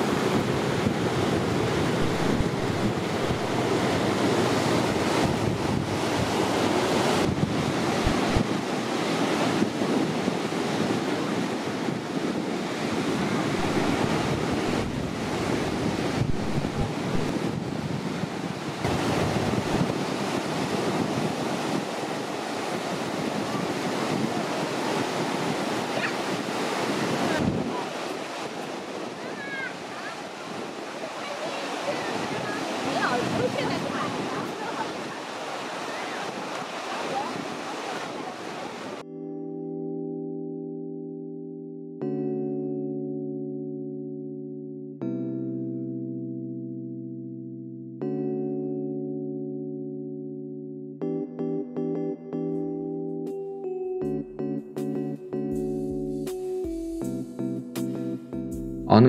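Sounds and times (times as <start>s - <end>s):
surf breaking on beach: 0.0s - 39.0s
wind buffeting microphone: 0.0s - 39.0s.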